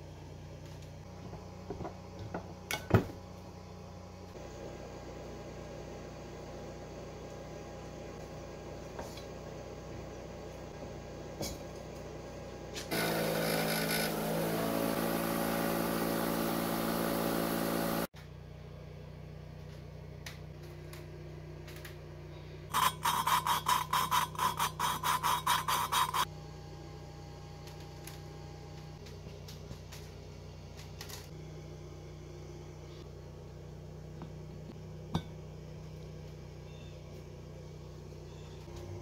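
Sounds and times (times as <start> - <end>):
loud machine hum: 12.1 - 18.1
gritty valve lapping scrapes: 22.7 - 26.2.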